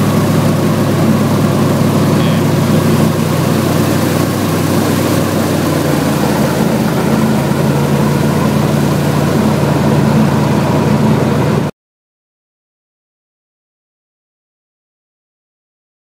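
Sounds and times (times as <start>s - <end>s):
airboat engine and propeller: 0.0s - 11.7s.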